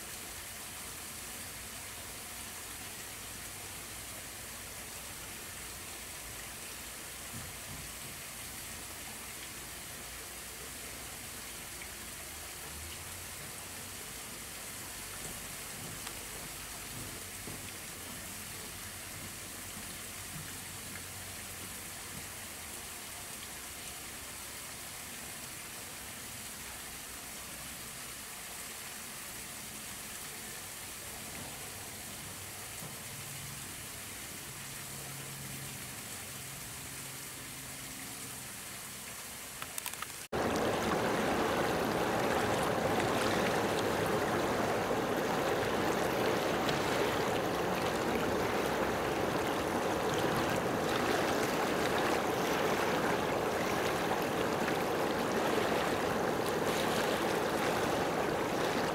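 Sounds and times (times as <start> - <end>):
outdoor background hiss: 0.0 - 58.9
water rushing at shoreline: 0.0 - 58.9.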